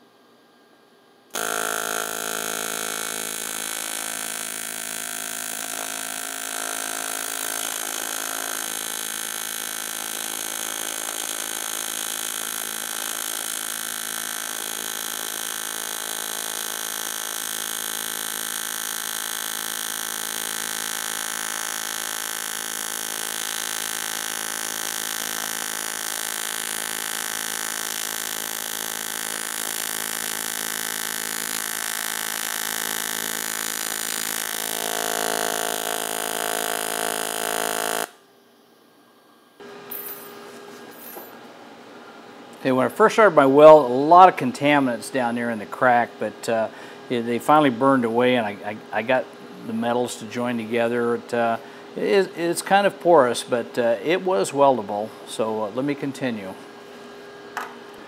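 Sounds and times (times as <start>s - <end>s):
welding arc buzzing: 1.3s - 38.3s.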